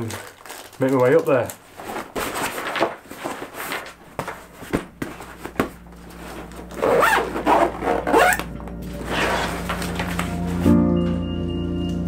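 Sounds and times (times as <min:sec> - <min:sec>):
bag handling knocks: 0:04.1 - 0:08.6
backpack zip pulled shut: 0:06.8 - 0:08.5.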